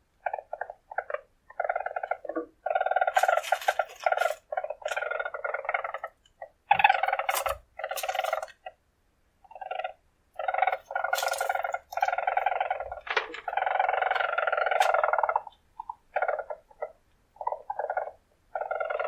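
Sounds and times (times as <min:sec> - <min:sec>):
weasel purring trills: 0:00.0 - 0:08.8, 0:09.4 - 0:19.0.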